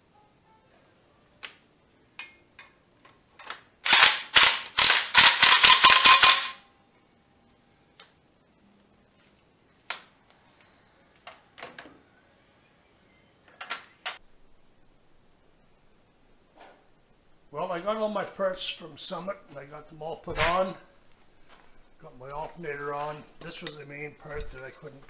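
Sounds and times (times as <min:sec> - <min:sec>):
parts clicking and knocking: 0:02.2 - 0:06.6
impact driver bursts: 0:03.8 - 0:06.6.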